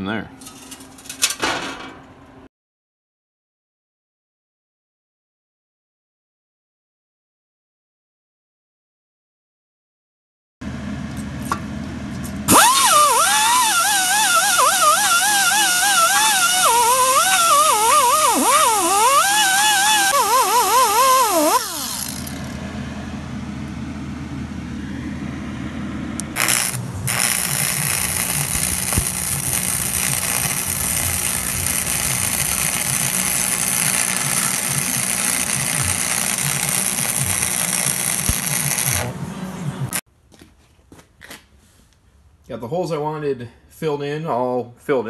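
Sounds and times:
low steady hum: 0:10.6 - 0:40.0
angle grinder whining on steel: 0:12.5 - 0:22.6, 0:26.2 - 0:40.0
welder crackling: 0:12.5 - 0:22.6, 0:26.2 - 0:39.2.

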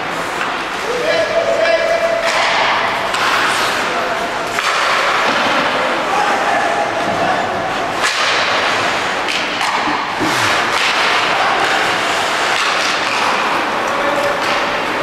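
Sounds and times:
hockey sticks and puck knocking: 0:01.7 - 0:05.9, 0:07.9 - 0:15.0.

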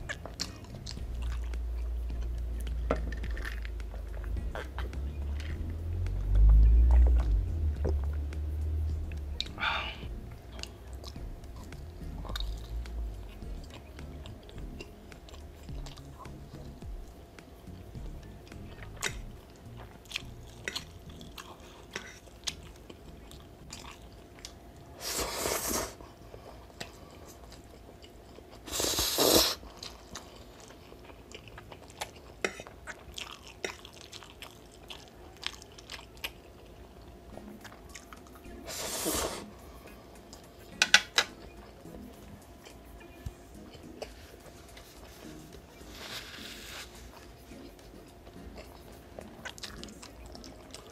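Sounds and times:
wet chewing: 0:10.2 - 0:17.2, 0:17.8 - 0:24.6, 0:29.6 - 0:38.6, 0:43.5 - 0:50.9.

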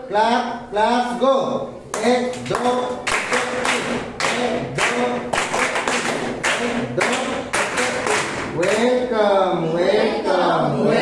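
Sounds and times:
children clapping rhythmically: 0:01.9 - 0:09.0.

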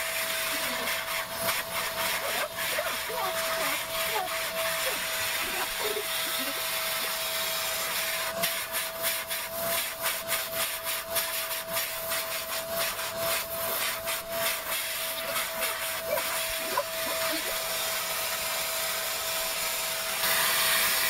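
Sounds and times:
vacuum cleaner whining: 0:00.0 - 0:21.0
nozzle rasping through fur: 0:13.7 - 0:17.6.

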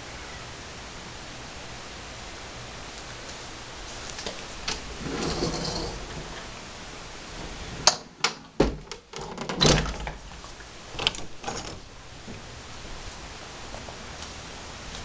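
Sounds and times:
closet door latch clicks and knocks: 0:07.9 - 0:10.2.

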